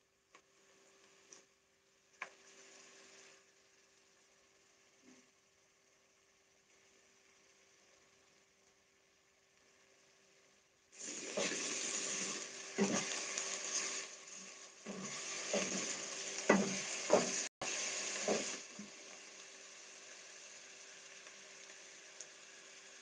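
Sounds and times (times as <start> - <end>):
onions sizzling in oil: 0.5 - 23.0.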